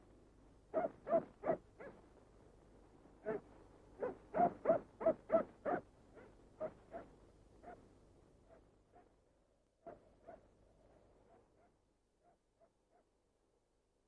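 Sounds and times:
short sharp animal calls: 0:04.0 - 0:07.8.

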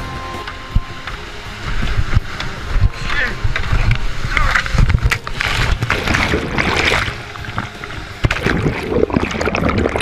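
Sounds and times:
whitewater churning: 0:00.0 - 0:10.0.

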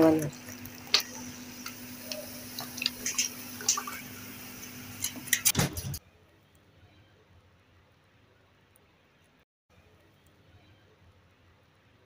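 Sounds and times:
soda bubbles fizzing: 0:00.0 - 0:05.5.

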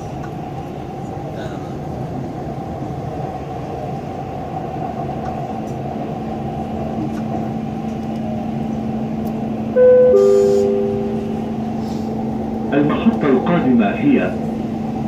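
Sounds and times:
moving train rumble: 0:00.0 - 0:15.0
steady low hum: 0:08.8 - 0:13.7.

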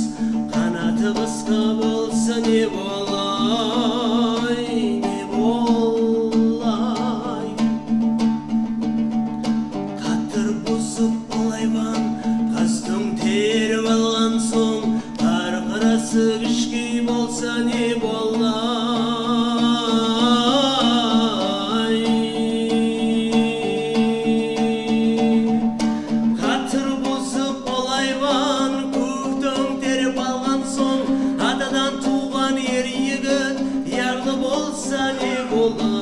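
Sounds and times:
man singing with vibrato: 0:00.0 - 0:08.3, 0:09.9 - 0:36.0
strummed plucked lutes: 0:00.0 - 0:36.0.

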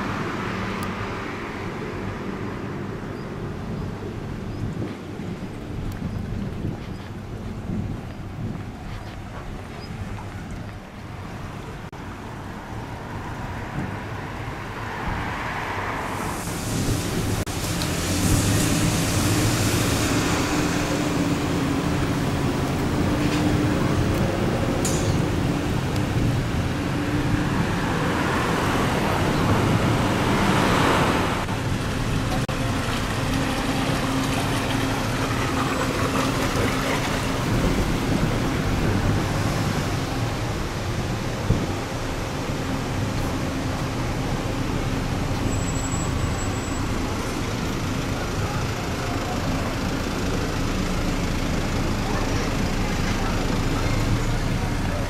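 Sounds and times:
wind rumbling on microphone: 0:00.0 - 0:45.1
road traffic hiss: 0:00.0 - 0:55.0
vehicle passing: 0:13.2 - 0:41.2.

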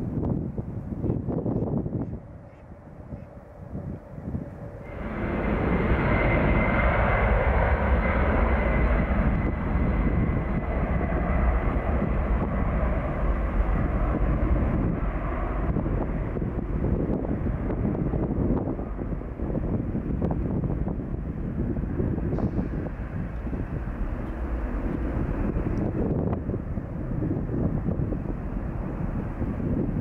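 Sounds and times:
jet engines roaring at takeoff: 0:00.0 - 0:30.0
faint high whine: 0:04.6 - 0:11.5.

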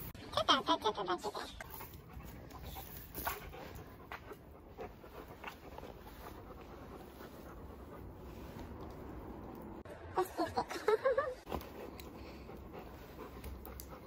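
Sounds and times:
puppy panting: 0:01.3 - 0:09.7, 0:11.5 - 0:14.0.

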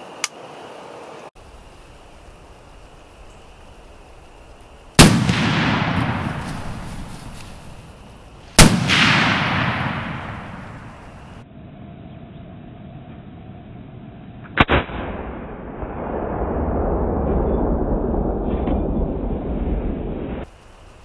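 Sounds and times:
muffled sharp gunshot cracks: 0:05.0 - 0:07.3, 0:08.6 - 0:11.1
rifle shots echoing: 0:05.0 - 0:07.8, 0:08.5 - 0:11.4.

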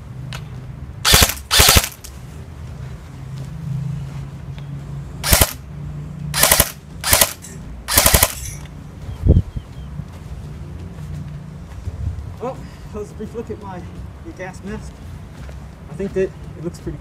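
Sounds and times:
airsoft rifle firing bursts: 0:01.1 - 0:02.0, 0:05.2 - 0:05.6, 0:06.4 - 0:08.6.

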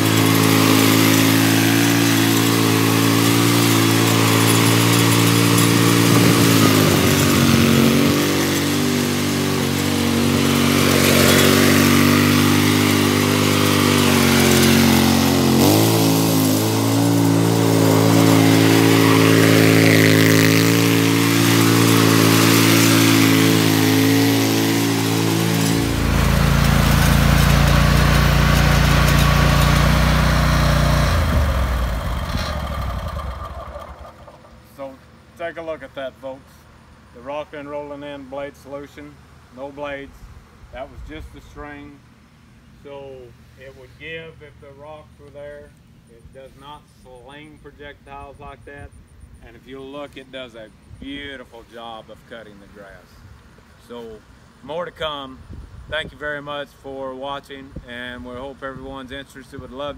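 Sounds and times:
riding mower engine running: 0:00.0 - 0:36.0.

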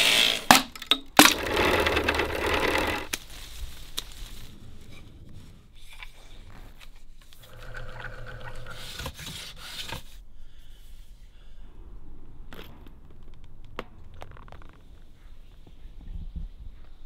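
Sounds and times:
small motor running: 0:01.3 - 0:03.1.

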